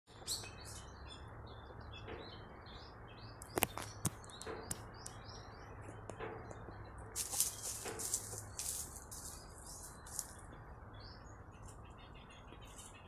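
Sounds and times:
small birds chirping: 0.1 - 13.0
sharp clicks: 3.4 - 5.2.

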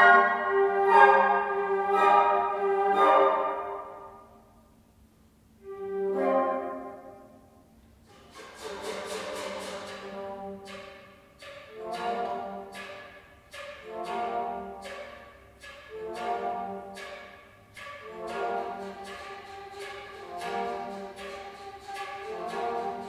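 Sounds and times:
low bass flute notes: 0.0 - 4.4
flute ensemble playing chords: 0.0 - 4.5, 5.6 - 23.0.

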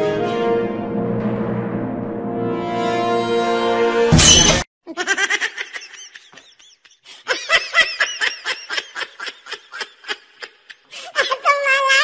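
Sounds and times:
orchestral music with timpani: 0.0 - 4.1
person laughing: 4.9 - 11.7.

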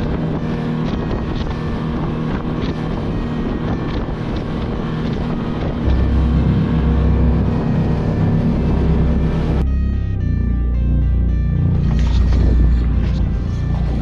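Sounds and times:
water rushing past hull: 0.0 - 9.6
wind on microphone: 0.0 - 9.6, 11.7 - 14.0
motorboat engine drone: 0.0 - 14.0
deep low rumble: 4.4 - 14.0.

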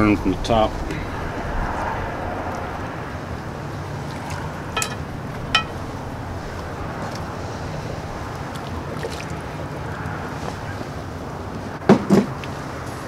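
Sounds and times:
steady low rumble: 0.0 - 9.9
metal tongs clinking on cast iron pot: 4.8 - 5.8.

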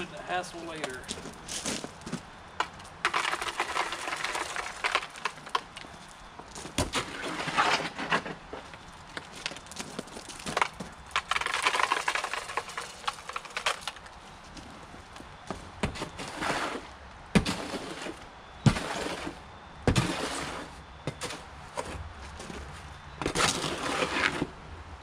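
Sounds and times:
shovel scraping wet concrete: 3.1 - 5.6, 6.8 - 8.4, 15.9 - 22.0, 23.2 - 24.5.

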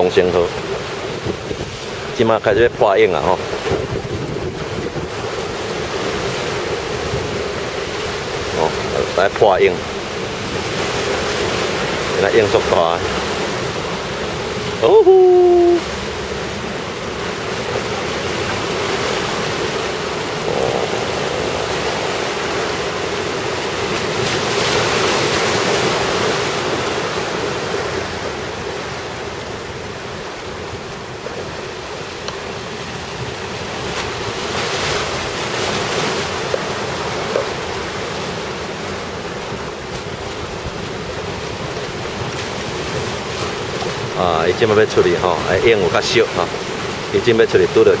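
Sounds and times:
waves breaking: 0.0 - 48.0
wind buffeting microphone: 0.5 - 9.0, 16.0 - 44.6.

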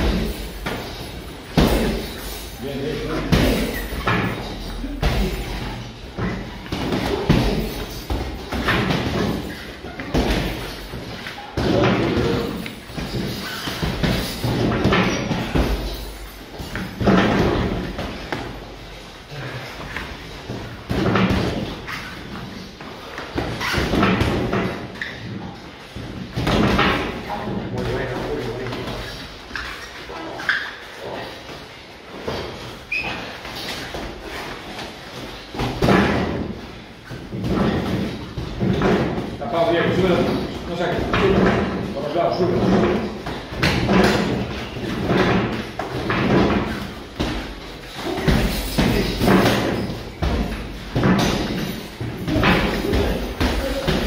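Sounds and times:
boxing gloves thumping: 3.2 - 18.6, 33.6 - 54.0
boxing gloves thudding: 42.6 - 54.0.

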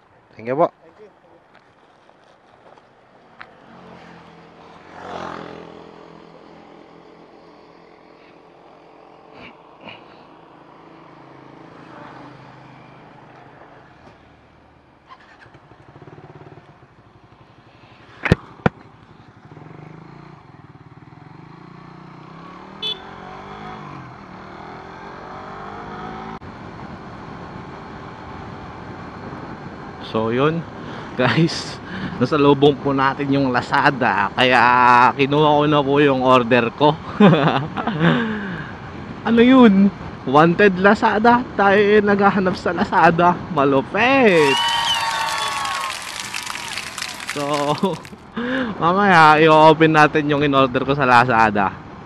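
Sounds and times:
motorcycle engine running: 15.2 - 23.0.

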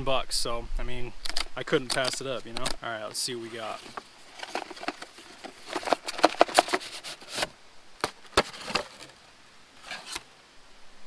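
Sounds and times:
cardboard flaps rustling: 3.5 - 9.2
cardboard tearing: 3.6 - 9.2.

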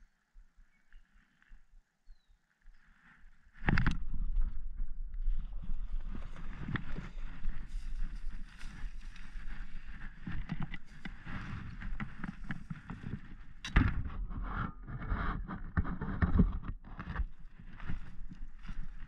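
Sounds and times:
rustling on dry grass: 2.8 - 19.0
low microphone rumble: 3.8 - 19.0.

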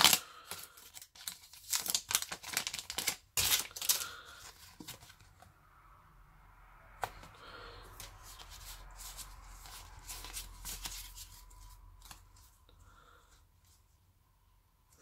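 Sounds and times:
trading cards shuffled: 8.0 - 12.5.

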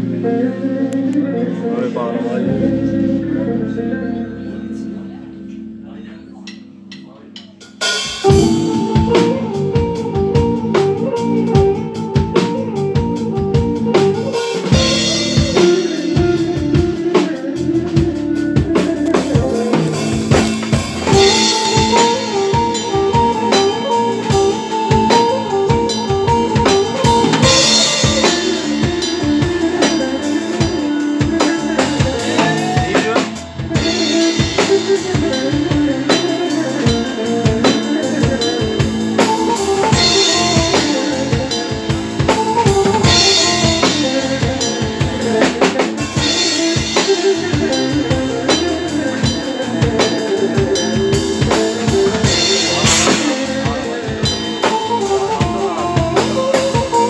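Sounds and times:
live band playing: 0.0 - 57.0
bass drum and snare rhythm: 6.4 - 57.0.

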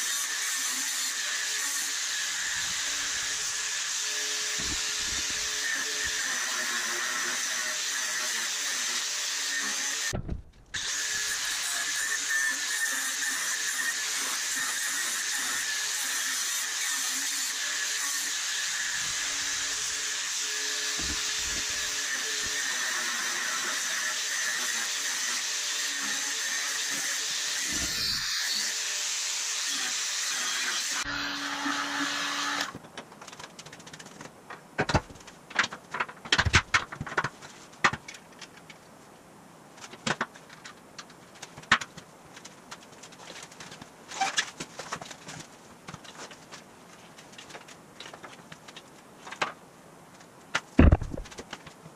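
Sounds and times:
metal frame knocks and clanks: 10.1 - 10.8.

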